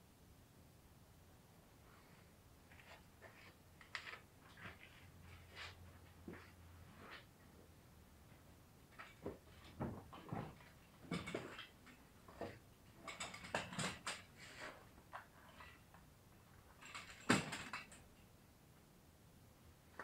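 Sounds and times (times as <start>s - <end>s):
small parts clicking and rustling: 2.7s - 4.9s, 8.8s - 18.4s.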